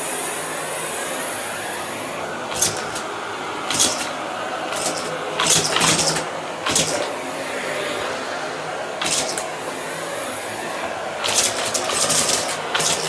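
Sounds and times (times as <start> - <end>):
vacuum cleaner running: 0.0 - 13.0
debris rattling in vacuum hose: 2.5 - 3.1, 3.7 - 7.1, 9.0 - 9.5, 11.2 - 13.0.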